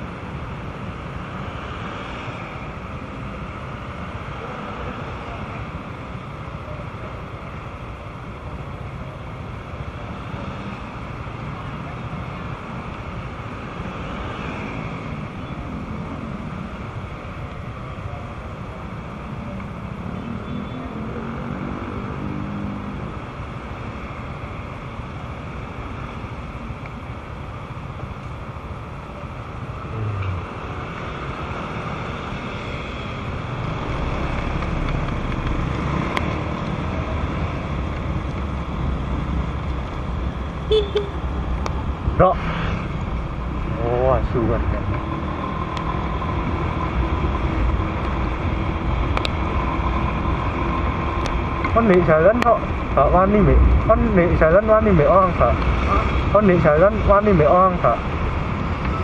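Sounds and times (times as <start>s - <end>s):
rain: 0.0s - 20.0s, 23.0s - 59.0s
low traffic rumble: 0.0s - 59.0s
wind: 0.0s - 59.0s
tyres hissing on wet road: 41.4s - 44.2s.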